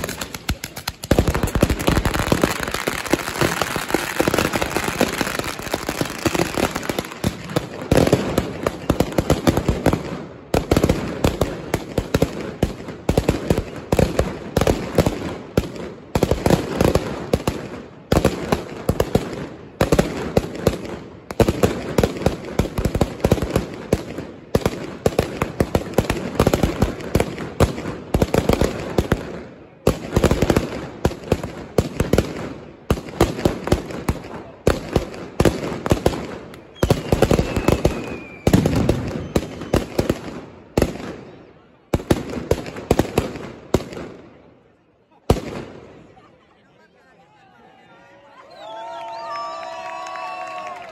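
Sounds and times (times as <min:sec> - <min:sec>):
firecrackers banging in volleys: 0:00.0 - 0:46.2
falling whistle: 0:36.8 - 0:38.6.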